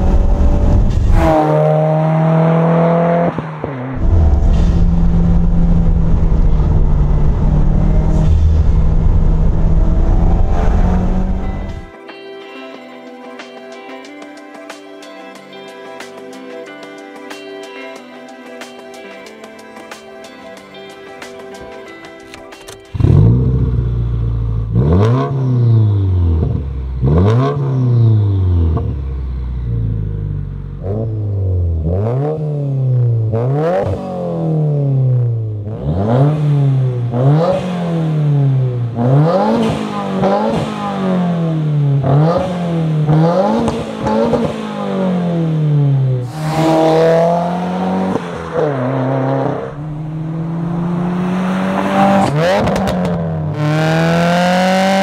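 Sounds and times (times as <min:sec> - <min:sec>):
car engine revving: 0:00.0 - 0:11.9, 0:23.0 - 0:55.0.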